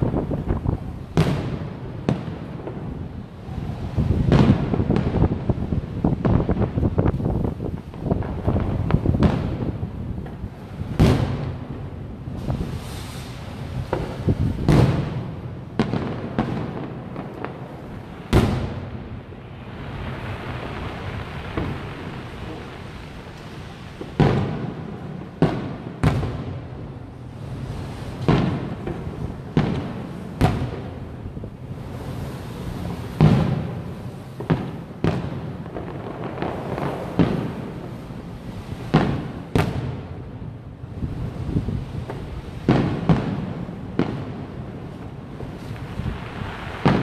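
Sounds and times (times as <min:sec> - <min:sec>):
fireworks bursting: 0:00.0 - 0:47.0.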